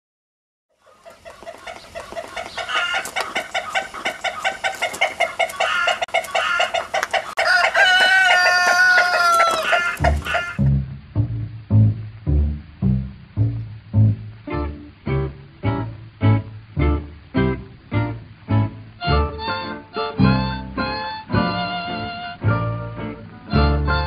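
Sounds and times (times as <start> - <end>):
chickens clucking: 0.7 - 10.7
rooster crowing: 2.6 - 3.7, 4.4 - 10.6
plucked double bass: 9.8 - 24.0.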